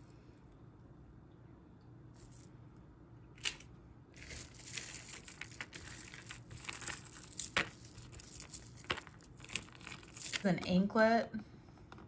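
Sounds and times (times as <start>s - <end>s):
plastic bag crinkling: 4.2s - 10.5s.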